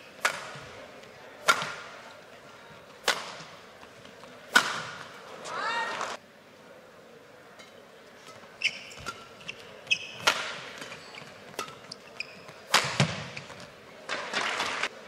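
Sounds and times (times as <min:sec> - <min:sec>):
racket striking shuttlecock: 0:00.2 - 0:00.7, 0:01.4 - 0:02.0, 0:03.0 - 0:03.6, 0:04.5 - 0:05.2, 0:08.3 - 0:13.4
shoes squeaking on court: 0:08.2 - 0:13.9.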